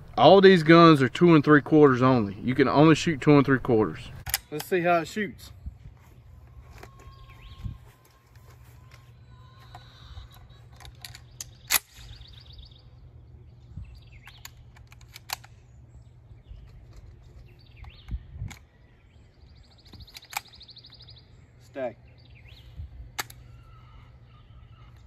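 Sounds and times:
bird trilling: 6.6 - 13.0, 22.0 - 25.0
low steady rumble: 9.9 - 19.8
shotgun metallic clicks and clacks: 14.3 - 15.6.

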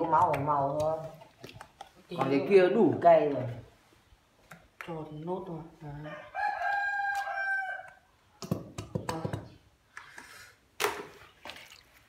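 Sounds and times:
rooster crowing: 6.0 - 8.1.

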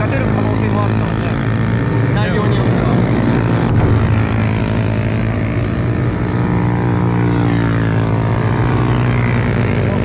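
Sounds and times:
motorcycle engines running: 0.0 - 10.0.

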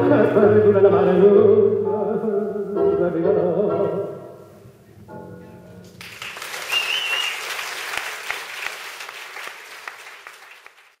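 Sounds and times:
audience applause: 6.0 - 11.0
person whistling: 6.7 - 7.4.

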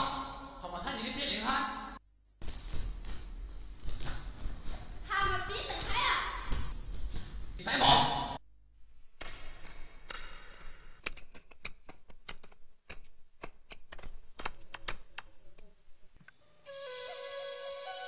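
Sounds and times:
sharp irregular clicks and taps: 11.0 - 15.3.

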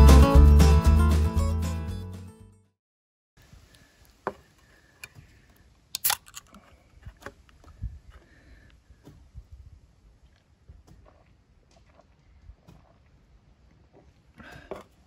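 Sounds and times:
background music: 0.0 - 2.7.

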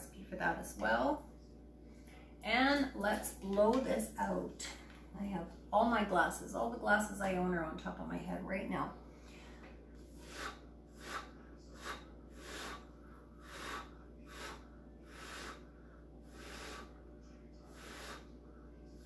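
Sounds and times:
person blowing short puffs: 10.1 - 15.6.

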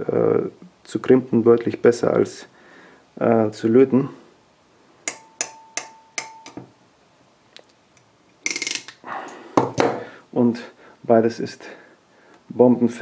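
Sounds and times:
crimping pliers ratchet clicking: 8.4 - 9.0.

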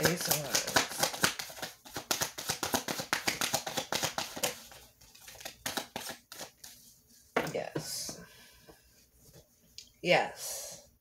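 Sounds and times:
cards being shuffled: 0.0 - 6.8.

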